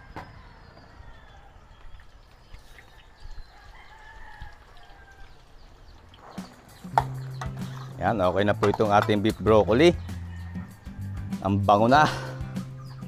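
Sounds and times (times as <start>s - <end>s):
faint rooster crowing: 0.0s - 5.6s, 9.9s - 11.5s.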